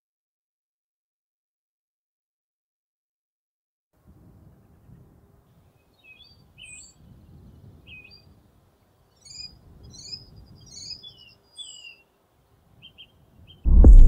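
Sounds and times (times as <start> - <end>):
birds chirping and trilling: 5.7 - 12.2
faint low background rumble: 13.7 - 14.0.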